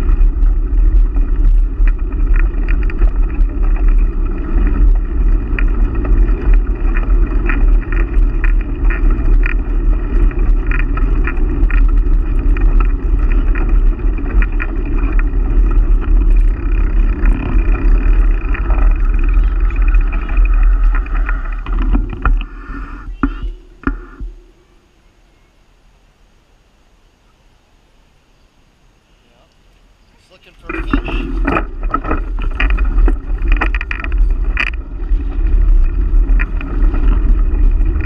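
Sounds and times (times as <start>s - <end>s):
wind rumble on microphone: 0.0s - 24.5s, 30.6s - 38.0s
bicycle tyres on rough asphalt: 0.0s - 27.2s, 28.0s - 38.0s
small rattling clicks: 30.6s - 38.0s.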